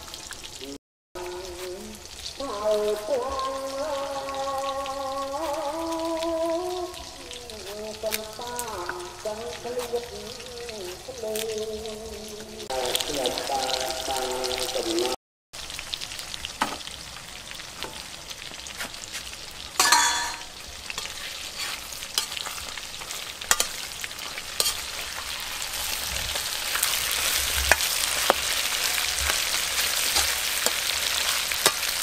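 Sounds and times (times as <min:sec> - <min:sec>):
meat sizzling in a wok: 0:00.0 - 0:11.8, 0:12.5 - 0:32.0
ringing metal clang: 0:19.8 - 0:20.5
metal spatula scraping pan: 0:19.8 - 0:32.0.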